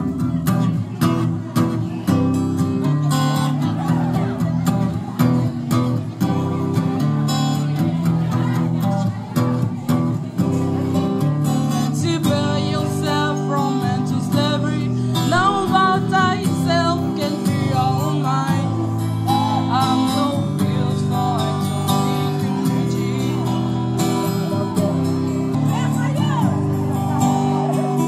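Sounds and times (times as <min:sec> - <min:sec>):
strummed acoustic guitar: 0:00.0 - 0:28.0
amplified singing: 0:11.8 - 0:25.7.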